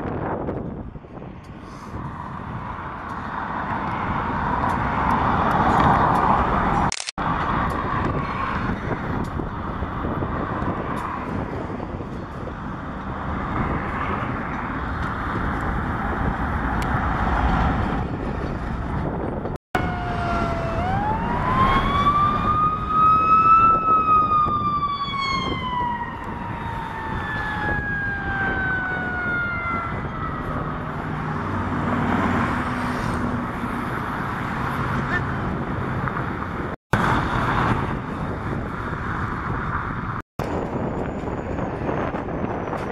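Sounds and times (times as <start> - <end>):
traffic rumble: 0.0 - 42.9
emergency vehicle siren: 19.8 - 31.6.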